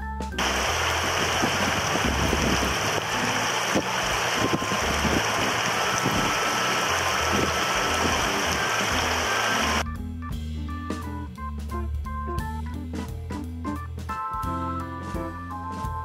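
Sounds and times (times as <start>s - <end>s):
river water rushing over rocks: 0.4s - 9.8s.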